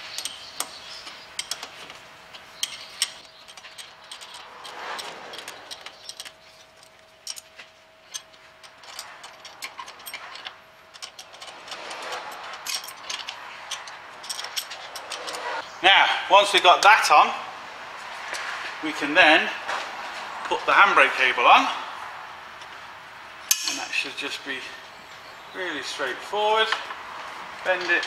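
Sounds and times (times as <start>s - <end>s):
spanner clicking and clinking: 0.0s - 15.6s.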